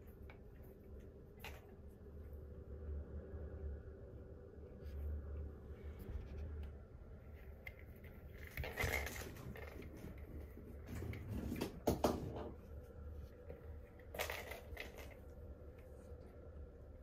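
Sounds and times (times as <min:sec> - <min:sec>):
plastic ball knocking: 0:11.5 - 0:12.6.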